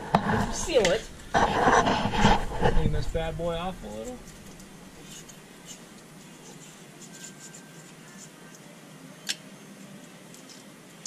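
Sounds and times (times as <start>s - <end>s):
scratching and rubbing by hand: 0.0s - 8.5s.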